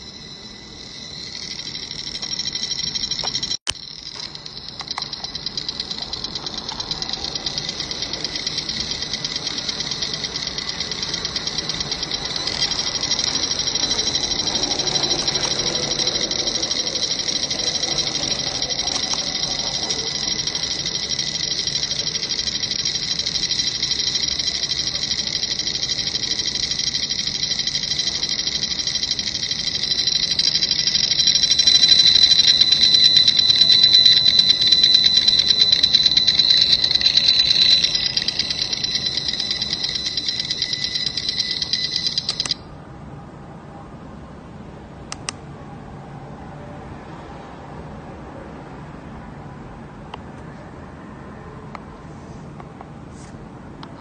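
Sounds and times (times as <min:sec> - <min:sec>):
meter buzz with high whine: 0:00.0 - 0:42.6.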